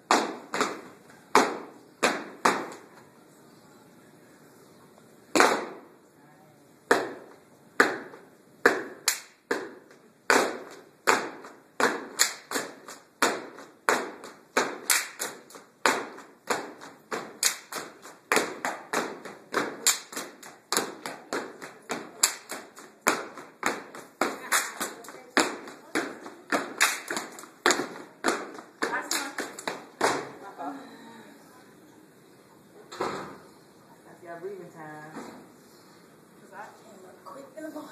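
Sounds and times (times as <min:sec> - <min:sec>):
sharp hand claps: 0:06.9 - 0:30.3.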